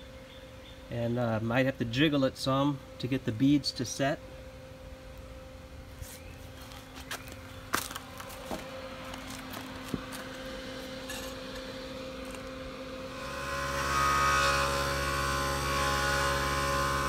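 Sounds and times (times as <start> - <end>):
air compressor humming: 0.9 - 17.0.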